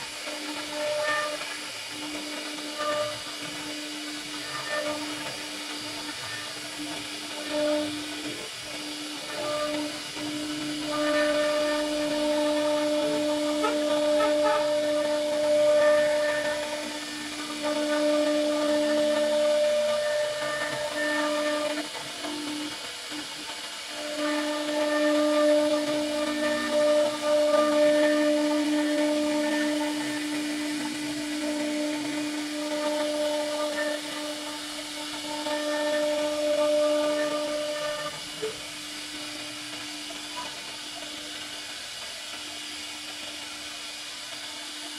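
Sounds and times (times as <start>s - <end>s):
bit cutting wood hiss: 0.0s - 44.9s
router spindle whining: 0.0s - 44.9s.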